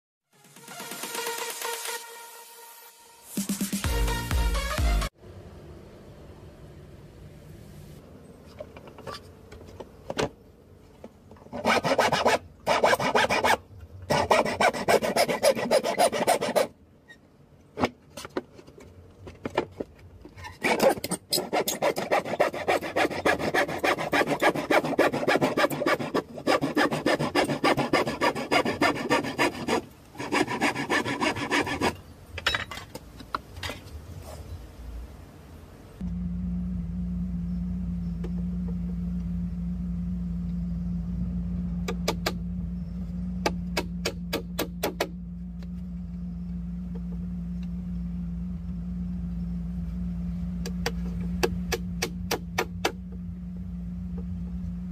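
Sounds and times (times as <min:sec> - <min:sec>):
hand saw cutting wood: 0:11.4 - 0:16.8, 0:20.5 - 0:32.0.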